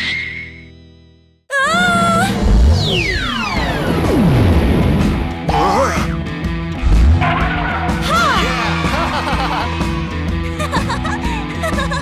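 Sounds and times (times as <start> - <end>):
upbeat background music: 3.6 - 12.0.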